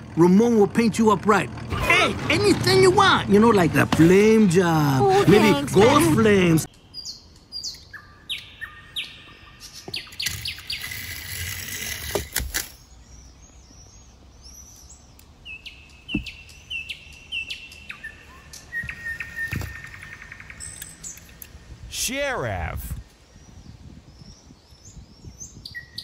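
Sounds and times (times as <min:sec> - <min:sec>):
small birds chirping: 0:02.0 - 0:26.0
bird trill: 0:06.7 - 0:11.3, 0:12.7 - 0:21.4.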